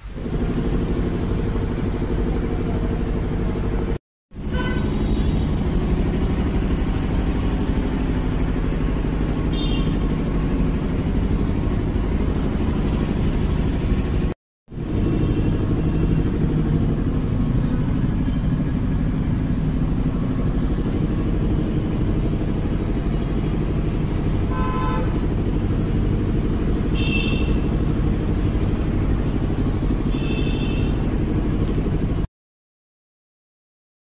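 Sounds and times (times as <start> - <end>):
vehicle engines running: 0.0 - 32.3
vehicle horn toots: 4.4 - 5.6, 9.5 - 10.0, 24.4 - 25.2, 26.9 - 27.7, 30.0 - 31.1.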